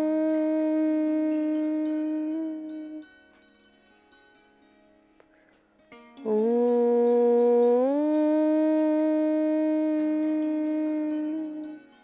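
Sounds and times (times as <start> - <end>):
person chanting om: 0.0 - 3.2, 6.2 - 12.0
soft plucked-string music: 0.0 - 12.0.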